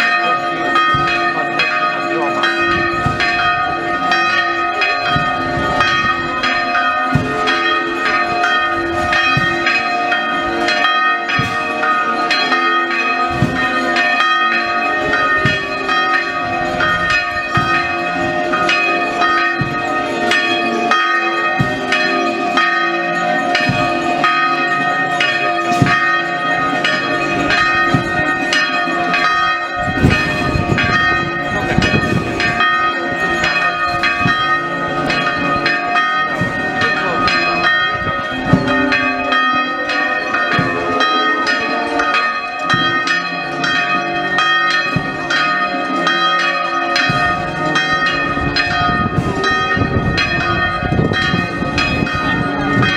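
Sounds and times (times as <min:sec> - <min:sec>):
church bells ringing: 0:00.0 - 0:52.9
crowd voices: 0:23.1 - 0:44.3.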